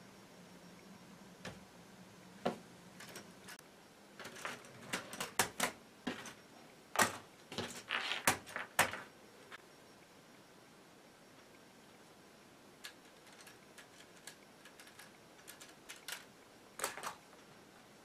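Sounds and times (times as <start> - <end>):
plastic toy parts clicking and knocking: 4.2 - 6.4, 7.0 - 9.1, 12.8 - 17.3.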